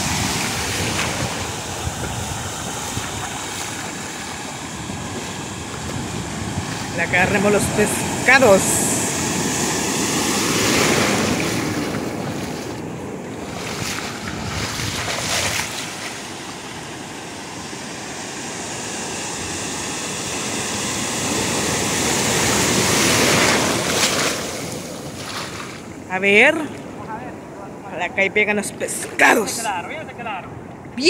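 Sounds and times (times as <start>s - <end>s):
wind buffeting microphone: 0.0s - 16.3s
ocean surf breaking: 0.0s - 31.0s.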